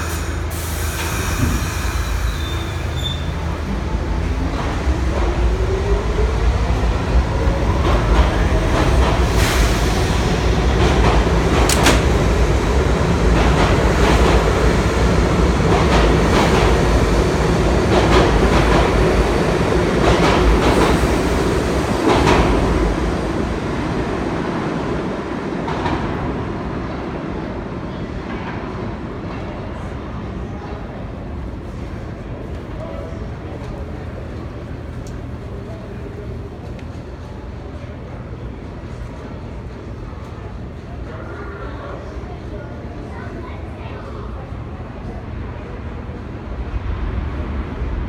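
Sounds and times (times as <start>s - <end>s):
subway train wheels rumbling on rail: 0.0s - 48.0s
sharp rail clacks: 11.0s - 12.4s.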